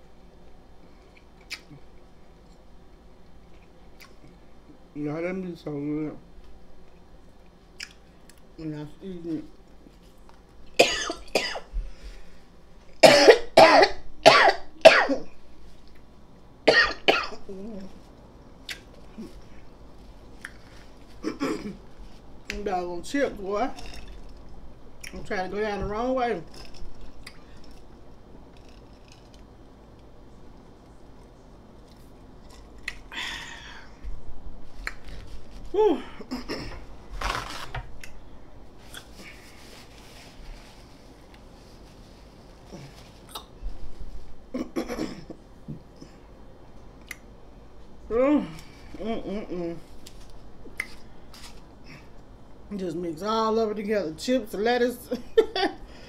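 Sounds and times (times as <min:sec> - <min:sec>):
woman coughing hard: 0:10.8 - 0:11.7, 0:13.0 - 0:15.3, 0:16.7 - 0:17.4, 0:21.2 - 0:21.8, 0:35.9 - 0:36.8, 0:44.5 - 0:45.4
crunching chips: 0:26.5 - 0:29.5, 0:37.1 - 0:38.2
paper towel tearing: 0:37.0 - 0:38.0.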